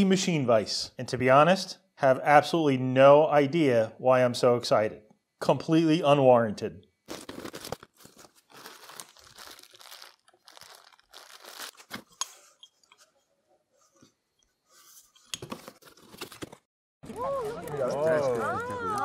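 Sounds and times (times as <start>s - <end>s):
plastic wrap crinkling: 7.0s - 12.3s
styrofoam insert crunching: 7.1s - 12.1s
packing tape tearing: 7.1s - 12.3s.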